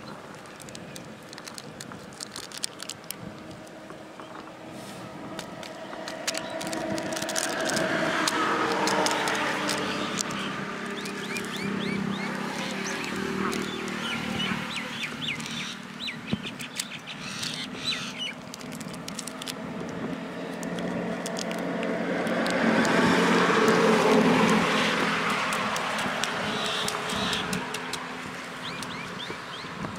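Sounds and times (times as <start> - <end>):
road traffic hum: 0.0 - 29.9
vehicle passing: 4.0 - 16.3, 17.2 - 29.8
birds chirping: 5.6 - 19.1, 23.8 - 29.9.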